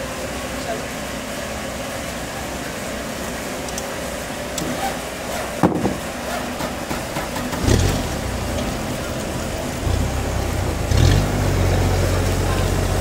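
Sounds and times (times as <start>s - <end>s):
engine idling: 0.0s - 13.0s
sharp knock: 5.6s - 6.0s.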